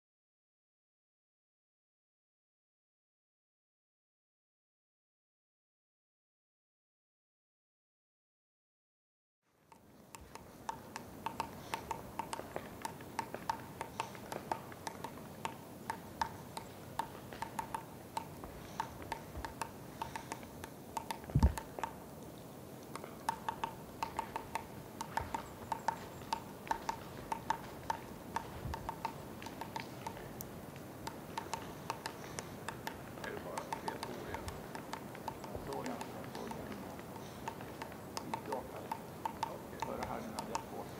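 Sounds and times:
woodpecker pecking on tree trunk: 9.6s - 40.9s.

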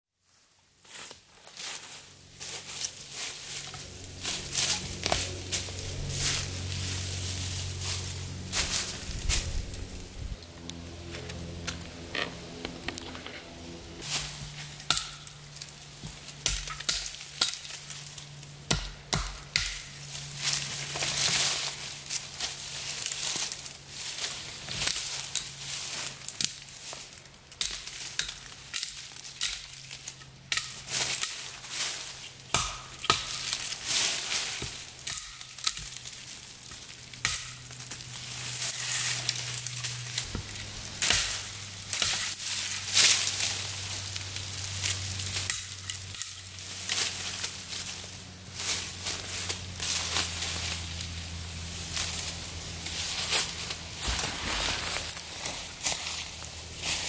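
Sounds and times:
dry leaves crackling underfoot: 0.2s - 57.0s
axe chopping tree trunk: 18.7s - 19.9s, 32.5s - 33.5s.

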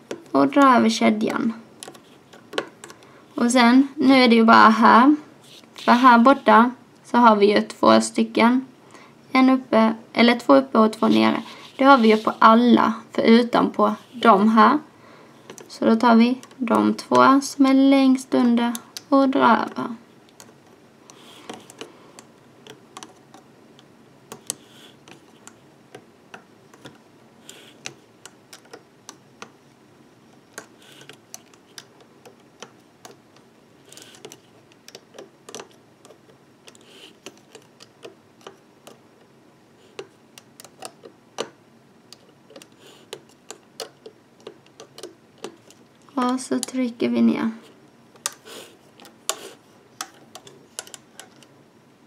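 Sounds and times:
metal hook clicking on plastic pegs: 50.0s - 51.5s.

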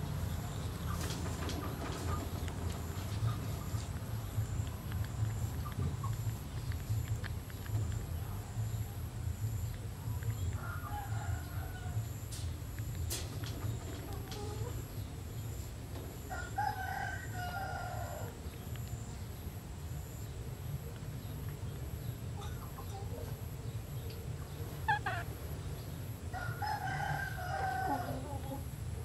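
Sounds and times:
steady low rumble: 0.0s - 16.3s
rooster crowing: 10.6s - 12.2s, 16.3s - 18.4s, 26.3s - 28.6s.

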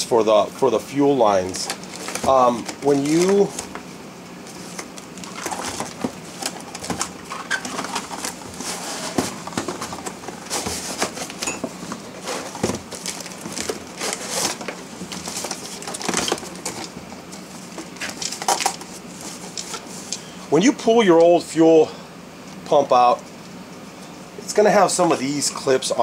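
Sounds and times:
cardboard and plastic rustling: 1.2s - 20.2s.

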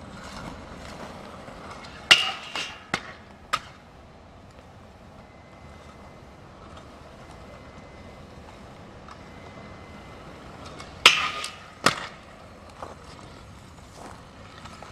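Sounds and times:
scooter clacking on metal rail: 0.2s - 3.8s, 10.6s - 12.4s.

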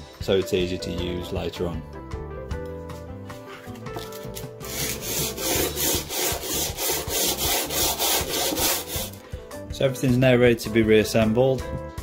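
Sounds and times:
background music: 0.0s - 12.0s
metal scraping on sandpaper: 4.6s - 9.2s.

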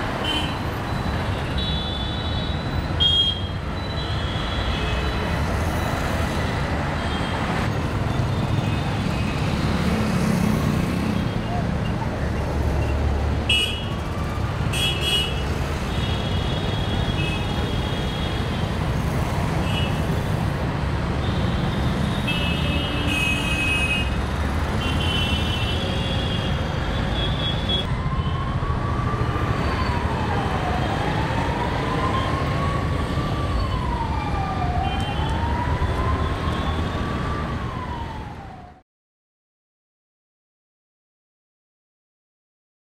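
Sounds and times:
heavy road traffic: 0.0s - 38.8s
emergency siren wailing: 27.7s - 38.8s.

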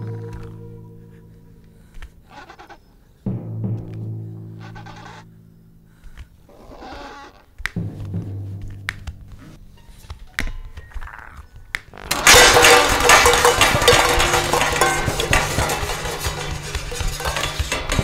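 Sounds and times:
tense orchestral film score: 7.8s - 10.2s
pots and pans crashing: 12.1s - 18.0s.

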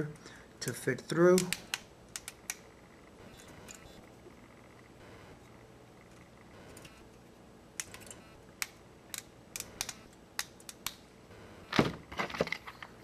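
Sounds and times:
wires snapping with sharp clicks: 0.0s - 4.0s, 7.7s - 11.1s.

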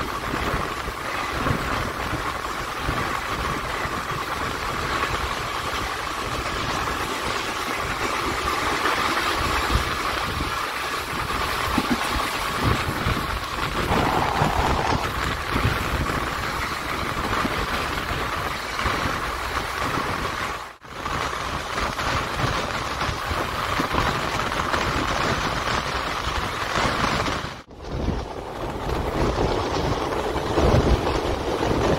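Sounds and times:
train wheels rumbling on rails: 0.0s - 31.9s
rushing air: 11.6s - 16.4s.

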